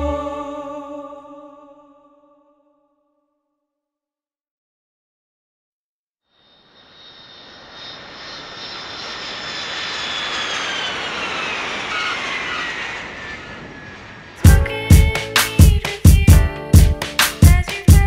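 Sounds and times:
aircraft passing overhead: 0:06.4 - 0:16.0
music with heavy drum hits: 0:14.4 - 0:18.0.

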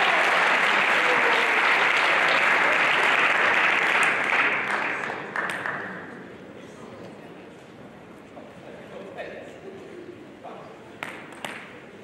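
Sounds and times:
spectators applauding: 0:00.0 - 0:06.0.

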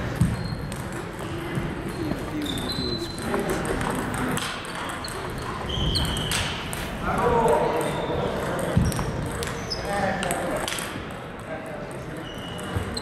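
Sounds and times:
table tennis ball ticking: 0:00.2 - 0:06.8
short high squeaks: 0:01.9 - 0:03.3.

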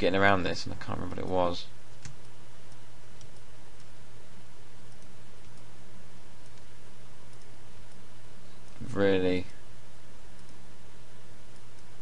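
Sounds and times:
low hum and hiss: 0:00.0 - 0:12.0
faint clicks: 0:04.9 - 0:05.7, 0:06.4 - 0:09.6, 0:10.3 - 0:10.6.

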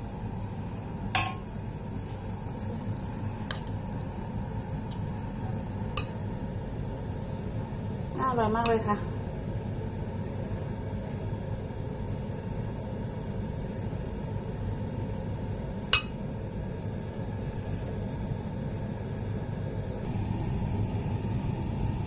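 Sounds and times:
low background hum: 0:00.0 - 0:22.0
metal spoon clinking ceramic bowl: 0:16.0 - 0:16.2.

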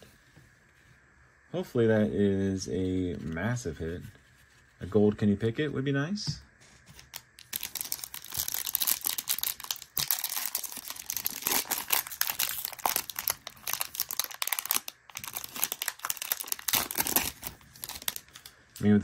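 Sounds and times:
foil wrapper crinkling and tearing: 0:07.1 - 0:18.6.

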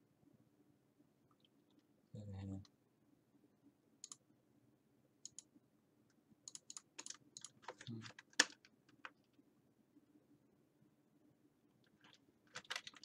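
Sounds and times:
keyboard typing: 0:04.0 - 0:04.2, 0:05.2 - 0:05.5, 0:06.4 - 0:09.3, 0:11.8 - 0:13.0.

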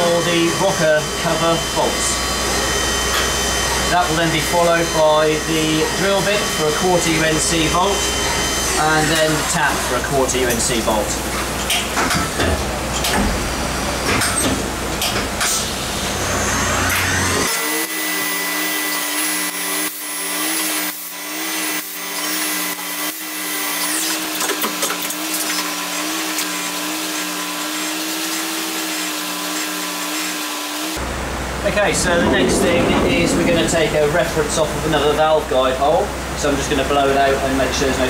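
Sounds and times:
coolant and cutting noise: 0:00.0 - 0:38.0
spindle whine: 0:31.0 - 0:35.6.

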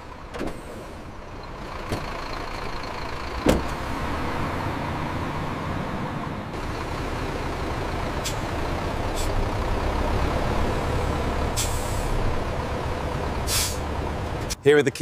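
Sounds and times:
diesel engine idling: 0:00.0 - 0:14.5
air brake hissing: 0:08.2 - 0:08.5, 0:09.2 - 0:09.4, 0:11.6 - 0:12.2, 0:13.4 - 0:13.9.

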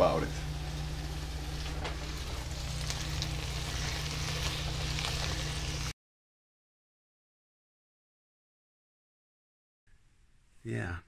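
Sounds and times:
steady low hum: 0:00.0 - 0:05.9
vegetables sizzling in a pan: 0:00.0 - 0:05.9.

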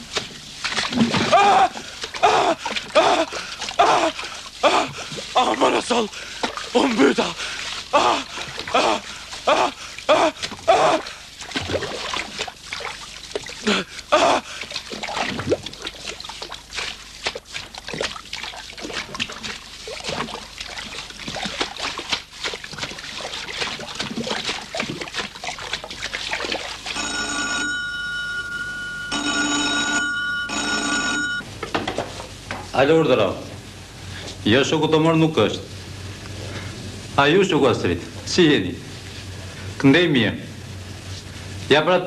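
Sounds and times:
telephone bell ringing: 0:27.0 - 0:31.4.

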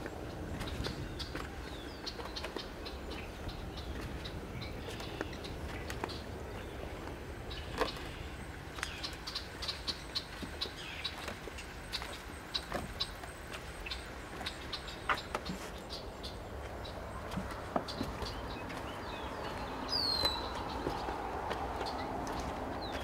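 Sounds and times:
birds chirping: 0:00.0 - 0:23.0
footsteps on wooden boards: 0:00.0 - 0:23.0
steady low rumble: 0:00.0 - 0:23.0.

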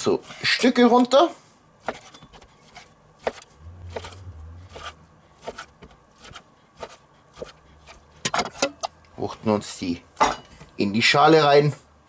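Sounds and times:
knife cutting on wooden board: 0:01.8 - 0:08.1.

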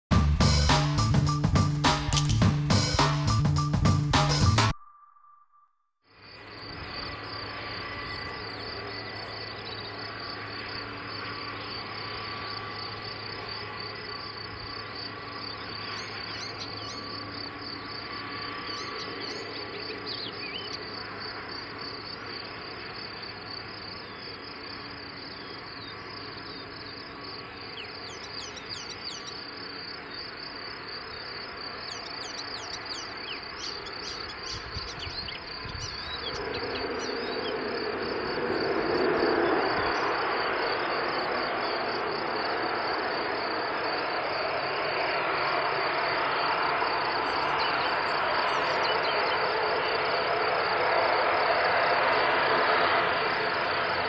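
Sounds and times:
short high chirps: 0:04.6 - 0:05.9
insects chirping in grass: 0:06.1 - 0:54.0
turboprop engines and propellers: 0:06.2 - 0:54.0.

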